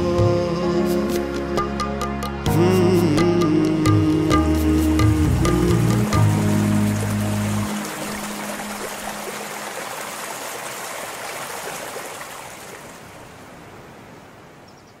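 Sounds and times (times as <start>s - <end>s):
flowing water rushing: 5.0s - 14.7s.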